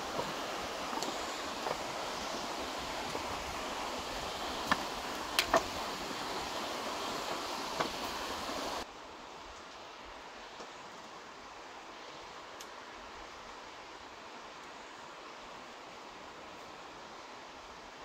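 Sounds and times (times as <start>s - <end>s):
river rapids rushing: 0.0s - 8.9s.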